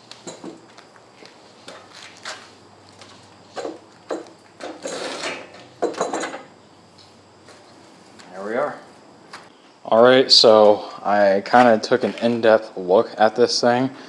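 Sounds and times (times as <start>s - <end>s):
rattling scrape of pulley hoist: 4.7s - 5.7s.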